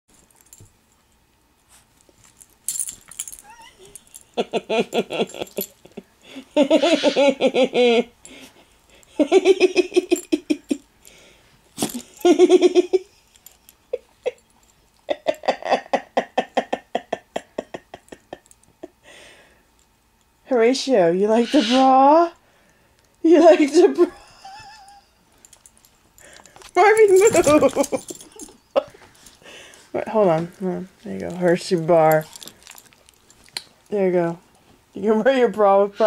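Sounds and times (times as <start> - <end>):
woman laughing: 4.4 - 8.2, 9.1 - 10.8, 11.8 - 13.3, 15.1 - 19.0, 23.3 - 25.2, 26.9 - 29.1.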